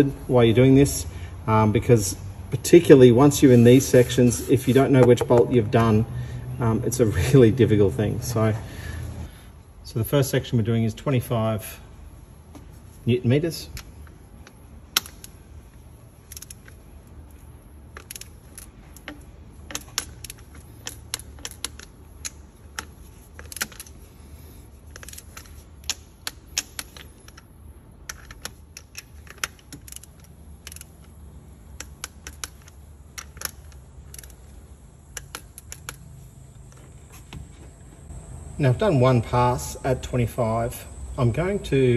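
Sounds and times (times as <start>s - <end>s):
torque wrench clicking: 13.7s - 15.5s, 16.2s - 24.0s, 24.9s - 36.8s.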